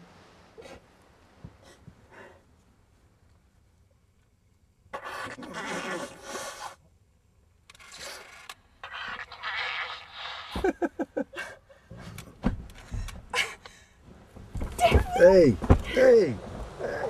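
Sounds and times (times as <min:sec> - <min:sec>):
person blowing nose: 0:05.5 - 0:06.8.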